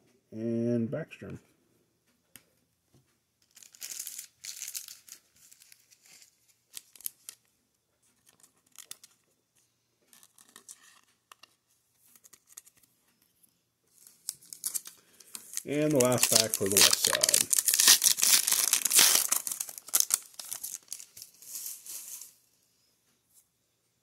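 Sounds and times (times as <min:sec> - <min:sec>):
plastic card sleeve crinkling: 0:03.4 - 0:07.5, 0:08.1 - 0:09.3, 0:10.0 - 0:12.9, 0:13.9 - 0:22.3
trading cards rustling: 0:03.5 - 0:07.4, 0:10.1 - 0:12.9, 0:13.9 - 0:22.4.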